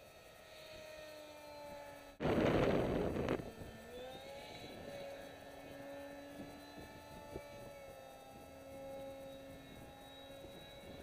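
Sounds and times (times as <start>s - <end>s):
electric motor whine: 0.0s - 11.0s
wind buffeting microphone: 2.2s - 5.0s, 5.7s - 11.0s.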